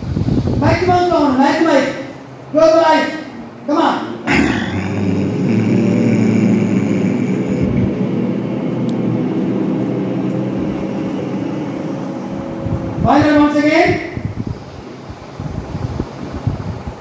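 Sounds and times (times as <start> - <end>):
group of people humming: 4.2 - 13.0.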